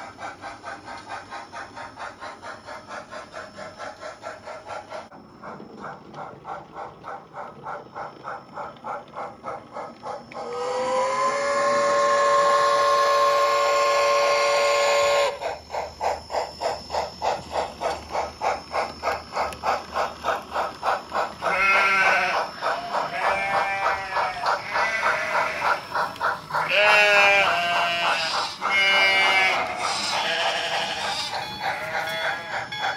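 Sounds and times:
steam hiss: 0.0s - 5.1s, 10.1s - 32.9s
model steam locomotive chuffs: 0.0s - 32.9s
long steam whistle: 10.5s - 15.4s.

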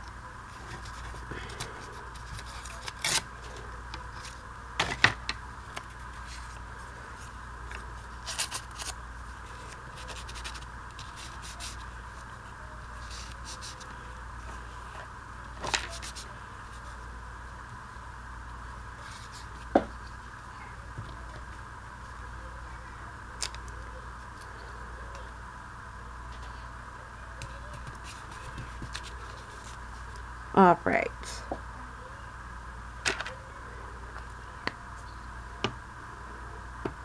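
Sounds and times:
electrical hum: 0.0s - 37.0s
paper scraping and rustling: 0.5s - 5.1s, 5.8s - 14.6s, 15.6s - 17.0s.

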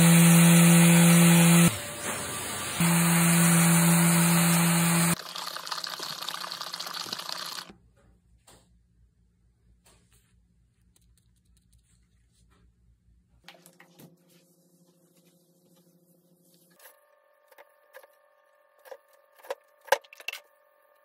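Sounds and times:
bottle of oil shaken: 5.2s - 7.7s.

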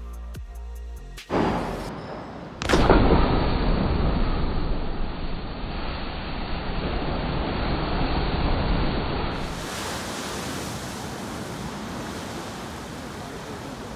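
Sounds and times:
rushing spray and churning water: 5.1s - 13.9s.

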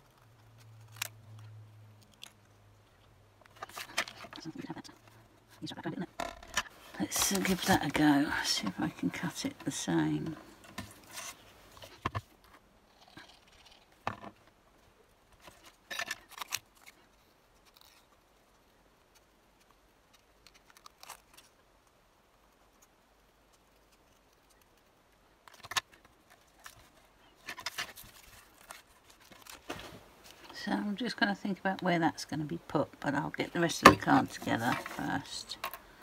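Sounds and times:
paper rustling: 3.5s - 5.2s, 6.6s - 12.5s, 25.5s - 30.6s, 33.6s - 35.5s.

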